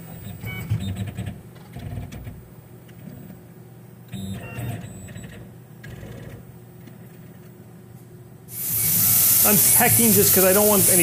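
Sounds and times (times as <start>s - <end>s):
stepper motors whirring: 8.5s - 11.0s.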